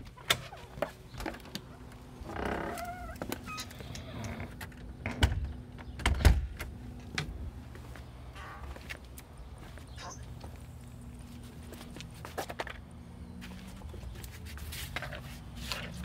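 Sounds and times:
door creaking open: 2.2 - 6.4, 8.3 - 8.9
footsteps on concrete steps: 7.6 - 12.8.

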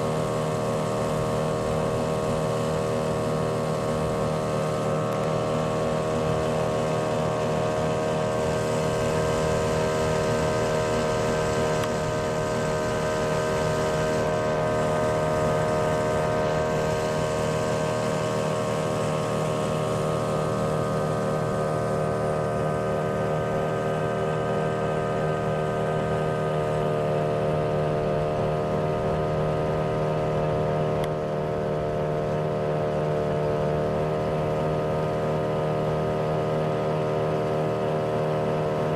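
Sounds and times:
motorboat engine running: 0.0 - 38.9.

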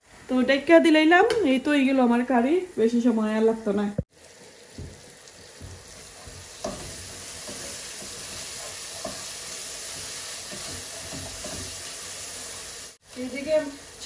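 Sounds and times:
food sizzling in a pan: 0.0 - 14.0
spoon knocking and scraping: 5.6 - 9.3, 9.9 - 11.7.

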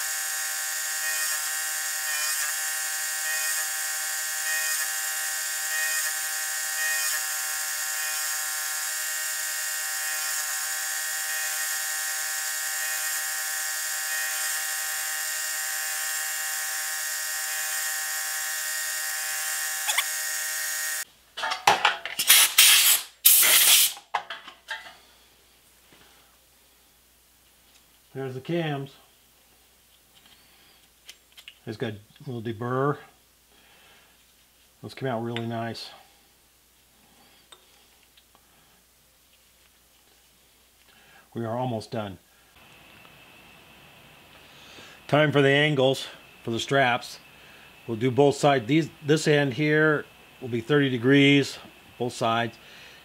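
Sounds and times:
milling machine cutting whine: 0.0 - 21.0
metal part handled in vise: 23.4 - 25.0.

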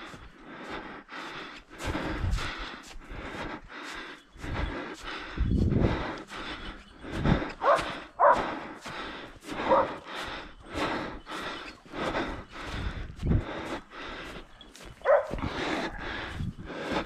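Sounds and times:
footsteps crunching through snow: 1.6 - 17.0
dog barking: 7.6 - 8.5, 9.6 - 10.0, 15.0 - 15.4.

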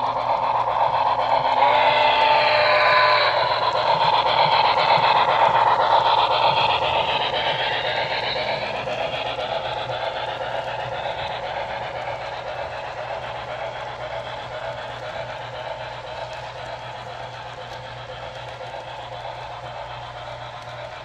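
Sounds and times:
model train wheels rolling: 0.0 - 21.0.

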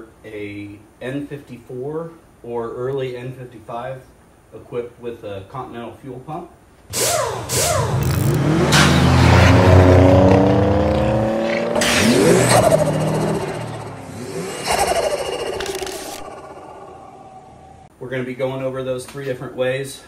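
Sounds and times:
car engine revving: 6.9 - 17.9.

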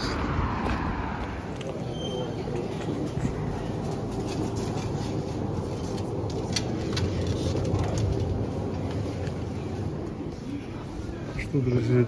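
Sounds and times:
light clicks and clatters: 2.6 - 10.2.

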